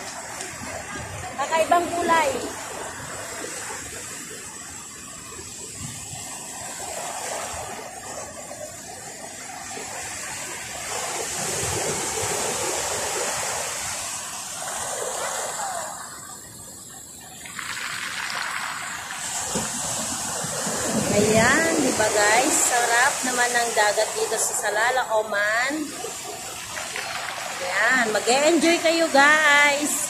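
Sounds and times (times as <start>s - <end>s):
waves washing over pebble beach: 17.4s - 30.0s.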